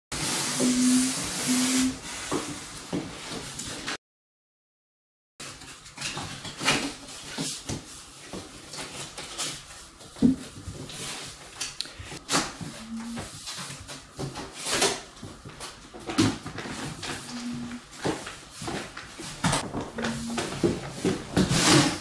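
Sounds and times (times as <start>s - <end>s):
cardboard rustling and scraping: 12.6s - 22.0s.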